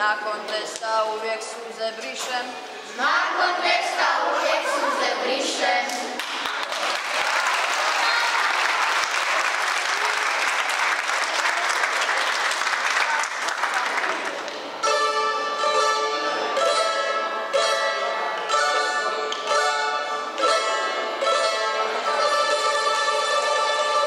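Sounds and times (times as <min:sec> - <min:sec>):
crowd applauding: 0:06.2 - 0:14.7
plucked string ensemble music: 0:14.6 - 0:24.0.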